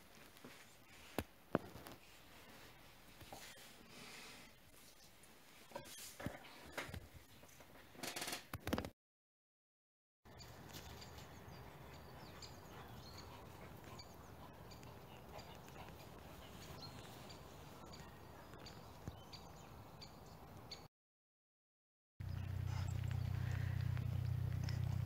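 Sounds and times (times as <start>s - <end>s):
low rumble: 22.2s - 25.0s.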